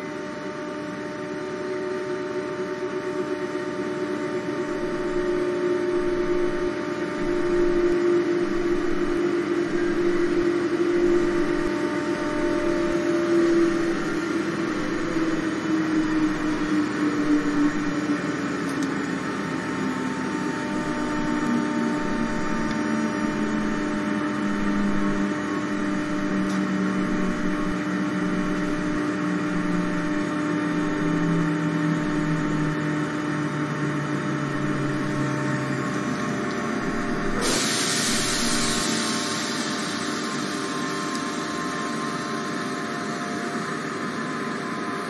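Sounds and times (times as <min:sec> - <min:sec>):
electric train motors whining: 0:00.0 - 0:45.0
loud hiss: 0:37.2 - 0:43.4.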